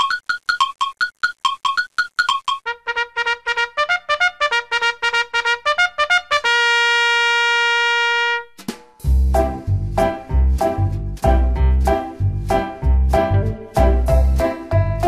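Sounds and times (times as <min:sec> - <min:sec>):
intro music with quick notes: 0:08.6 - 0:15.0.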